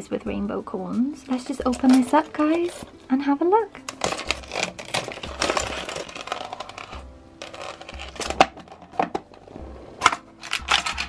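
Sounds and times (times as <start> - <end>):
quiet background music: 0.0 - 11.0
plastic packaging crinkling and tearing: 3.8 - 9.4, 10.0 - 11.0.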